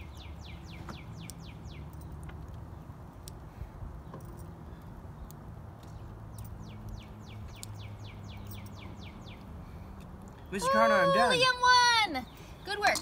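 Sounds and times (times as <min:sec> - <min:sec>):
songbird singing falling notes: 0:00.0 - 0:03.4, 0:04.0 - 0:09.6
low outdoor hum: 0:00.0 - 0:13.0.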